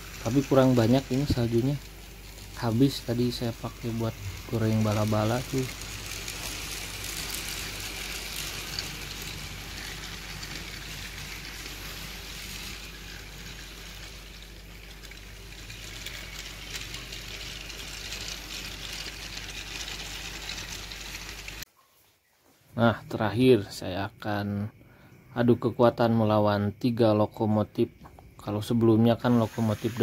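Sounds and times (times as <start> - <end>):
toy train cars rattling on track: 0.0 - 21.6, 28.5 - 30.0.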